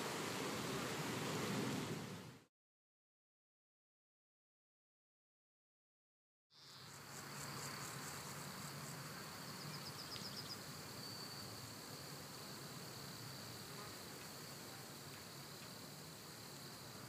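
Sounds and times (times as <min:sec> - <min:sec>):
low hiss: 0:00.0 - 0:02.5, 0:06.6 - 0:17.0
high insect drone: 0:06.6 - 0:17.0
chirps: 0:09.6 - 0:11.4.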